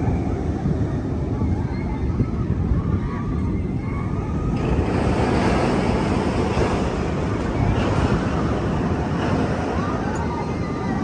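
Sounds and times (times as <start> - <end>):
roller coaster rumbling on track: 0.0 - 11.0
wind buffeting microphone: 0.0 - 11.0.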